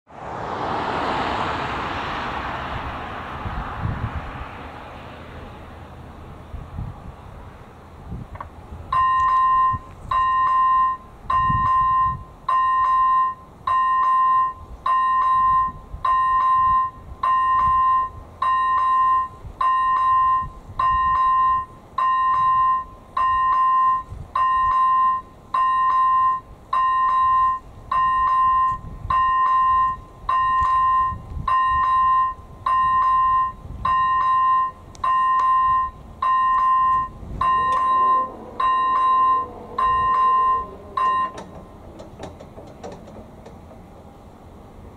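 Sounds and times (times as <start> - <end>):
level crossing warning bell: 8.9 - 44.2.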